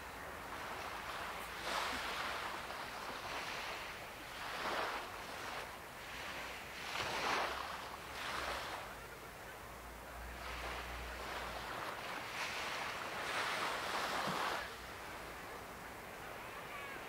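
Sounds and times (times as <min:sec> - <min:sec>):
ocean waves washing in: 0:00.0 - 0:17.0.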